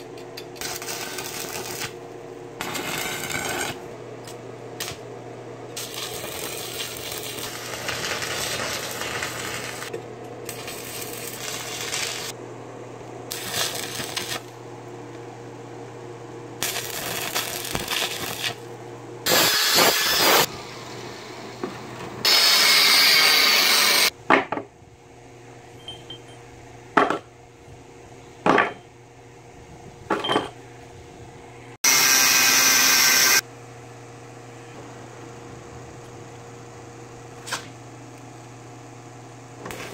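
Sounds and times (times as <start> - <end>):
steady low hum: 0.0 - 19.3, 24.1 - 31.8
arc welding crackle: 0.6 - 5.1, 5.7 - 12.4, 13.3 - 14.6, 16.6 - 18.7, 19.3 - 20.5, 22.3 - 24.1, 39.6 - 39.9
angle grinder cutting steel: 19.3 - 20.5, 22.3 - 24.1, 31.9 - 33.4.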